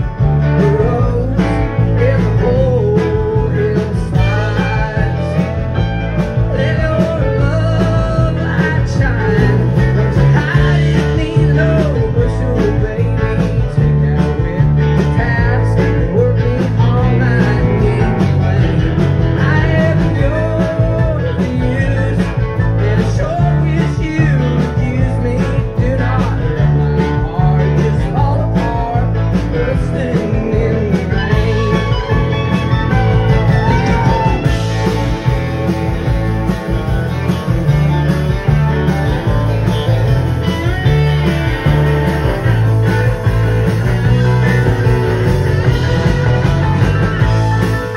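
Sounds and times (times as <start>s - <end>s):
man singing: 0.0s - 36.1s
live country-rock band: 0.0s - 47.9s.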